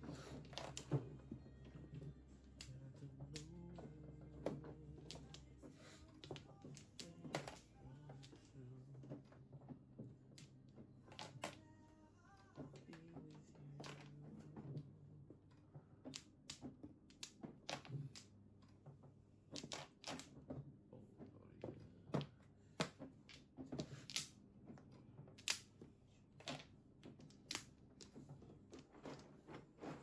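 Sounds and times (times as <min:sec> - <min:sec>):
mahjong tiles clicking: 0:02.5 - 0:08.6, 0:16.1 - 0:18.3, 0:19.5 - 0:20.3, 0:22.8 - 0:24.3, 0:25.4 - 0:25.7, 0:26.4 - 0:28.2.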